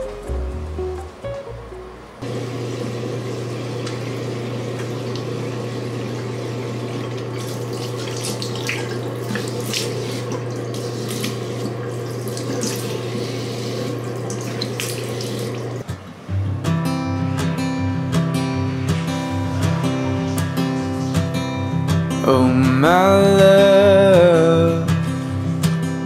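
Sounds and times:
sink tap running: 2.2 - 15.8
water splashing: 2.4 - 15.8.

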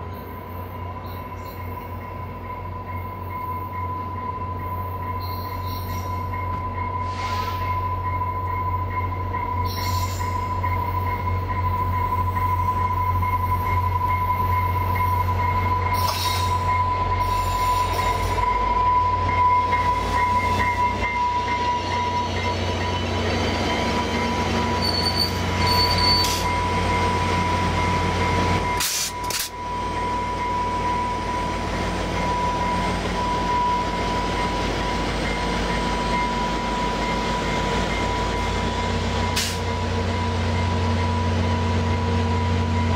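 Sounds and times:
wheels and brakes squealing: 4.8 - 6.3, 9.5 - 11.2, 14.3 - 19.1, 19.7 - 26.8.

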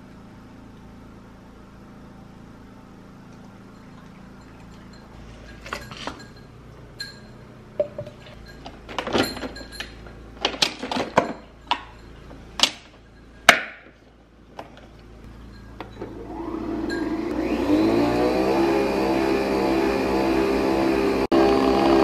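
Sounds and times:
cups knocking on countertop: 7.8 - 8.2.

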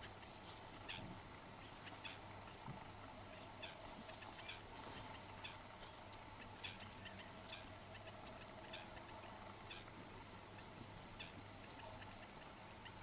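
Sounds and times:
steady low hum: 0.0 - 13.0
wading birds calling: 0.0 - 13.0.

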